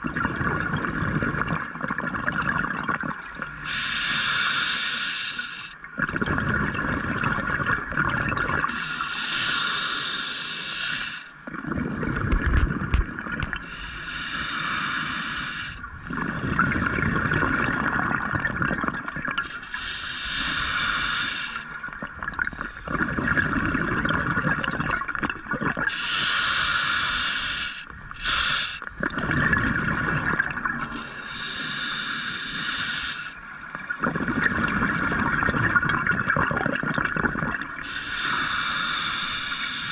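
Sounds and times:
exhaled air bubbling: 0.0s - 39.9s
regulator hissing inhale: 3.6s - 5.8s, 8.7s - 11.4s, 13.6s - 15.9s, 19.4s - 21.8s, 25.9s - 29.0s, 30.8s - 33.9s, 37.8s - 39.9s
background hiss: 8.7s - 11.4s, 13.6s - 15.9s, 19.5s - 21.9s, 25.9s - 29.0s, 37.8s - 39.9s.

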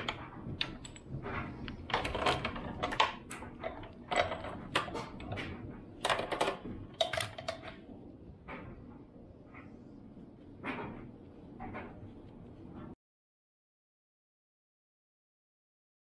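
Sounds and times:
metal chain clinking and rattling: 0.0s - 4.9s.

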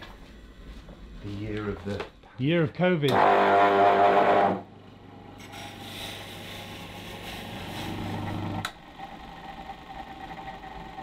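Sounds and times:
bench grinder humming: 3.1s - 4.7s, 5.4s - 11.0s
metal grinding scratchy hiss: 5.4s - 8.4s.

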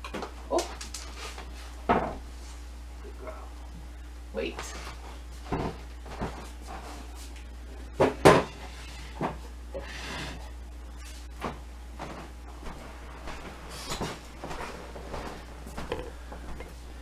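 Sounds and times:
objects knocking and clunking: 1.8s - 2.2s, 8.0s - 9.5s.

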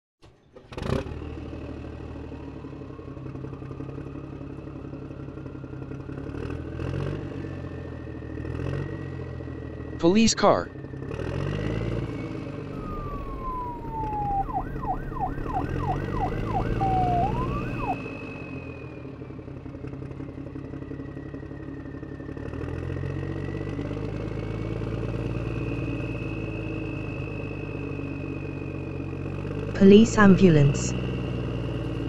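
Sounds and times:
slow wailing siren: 1.9s - 9.8s, 12.7s - 29.4s
siren tone sweeping up and down: 12.8s - 18.7s.

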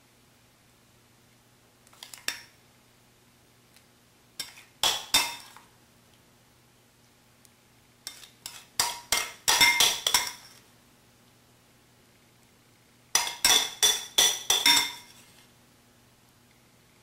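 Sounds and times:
metal spoon clinking on ceramic dish: 4.4s - 5.6s, 8.1s - 10.6s, 13.2s - 15.2s.

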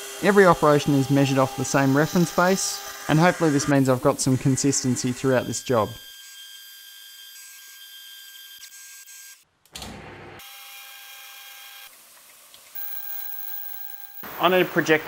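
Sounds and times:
milling cutter whine through steel: 0.0s - 6.5s.

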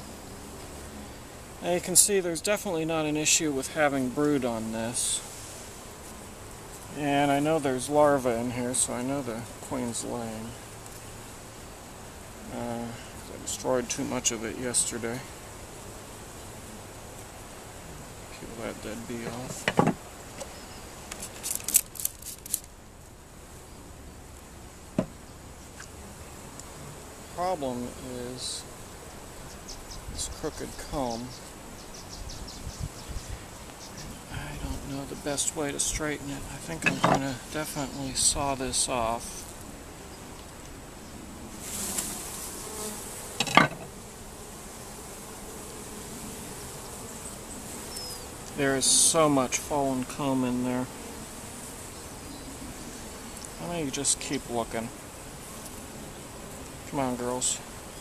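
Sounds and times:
honeybees buzzing: 0.0s - 58.0s
wooden knock: 19.6s - 20.0s
scratchy scrapes and rustles: 20.4s - 22.7s.

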